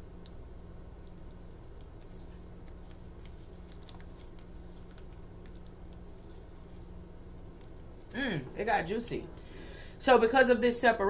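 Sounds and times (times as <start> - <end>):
low hum: 0.0 - 10.6
cards being handled: 1.0 - 8.1.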